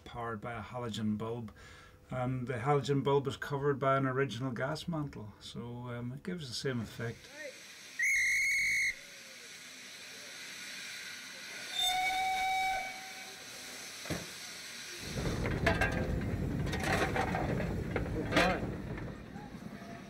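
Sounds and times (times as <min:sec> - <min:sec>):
steam hissing: 0:06.9 - 0:20.0
high train whistle: 0:08.0 - 0:09.3, 0:10.8 - 0:13.7
low steam locomotive whistle: 0:08.0 - 0:09.3, 0:10.8 - 0:13.7
rough rushing noise with scrapes: 0:15.0 - 0:20.0.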